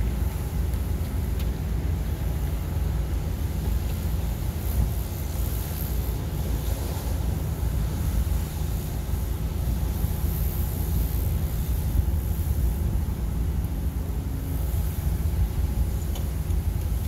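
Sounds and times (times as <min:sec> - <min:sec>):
pressure washer rumbling drone: 0:00.0 - 0:17.0.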